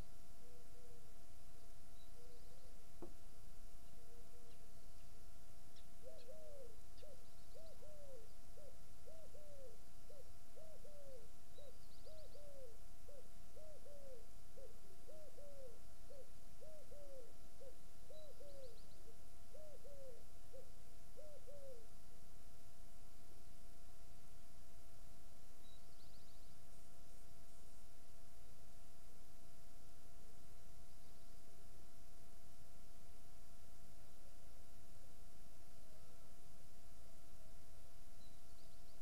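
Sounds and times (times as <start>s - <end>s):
pigeon cooing: 0.4s - 1.1s, 6.0s - 18.8s, 19.5s - 21.9s.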